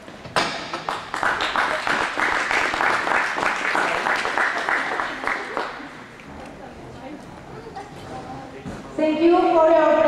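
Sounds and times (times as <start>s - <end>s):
close hand claps: 0.7s - 5.9s
applause: 0.8s - 5.9s.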